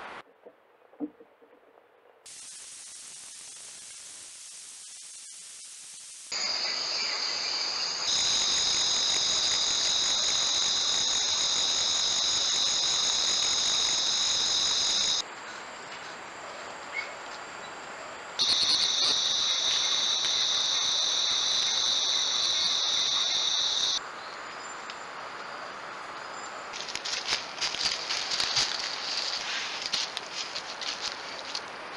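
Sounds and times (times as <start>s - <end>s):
jungle insects chorus: 6.3s - 15.2s, 18.4s - 24.8s.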